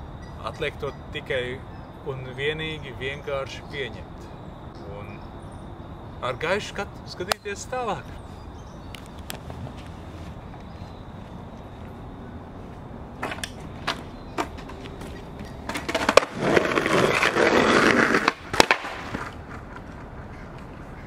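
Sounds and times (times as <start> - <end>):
skateboard wheels rolling on asphalt: 8.1 - 21.0
skateboard clacks: 13.2 - 21.0.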